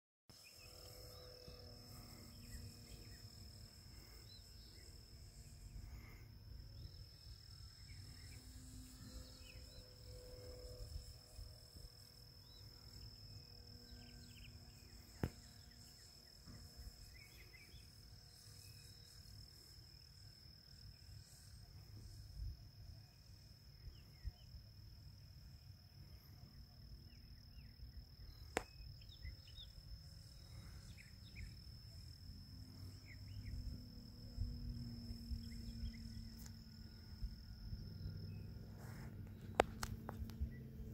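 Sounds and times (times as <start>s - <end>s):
high-pitched insect chorus: 0.3s - 40.9s
distant model plane motor hum: 0.4s - 20.0s, 29.4s - 40.9s.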